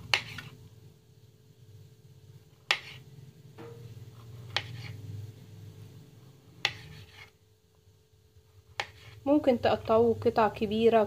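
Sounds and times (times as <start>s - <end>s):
low steady hum: 0.0s - 11.0s
knife slicing fruit: 2.6s - 3.1s, 4.3s - 5.0s, 6.6s - 7.3s, 8.7s - 9.2s.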